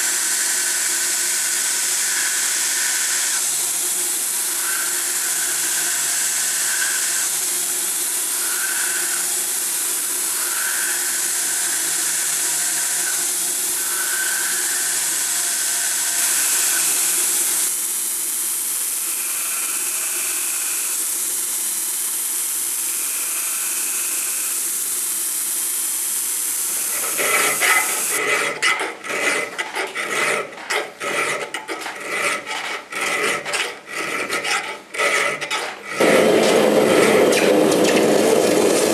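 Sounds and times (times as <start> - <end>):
round file rasping: 0.0 - 17.7, 26.6 - 38.9
belt grinder grinding steel: 0.0 - 17.8, 26.4 - 38.9.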